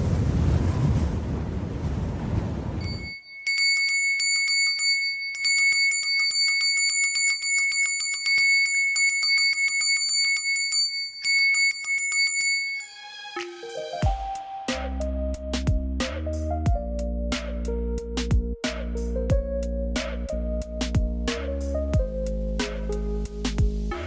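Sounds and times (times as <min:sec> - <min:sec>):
loud rushing rumble: 0:00.0 - 0:02.8
small bell jingling: 0:02.8 - 0:13.0.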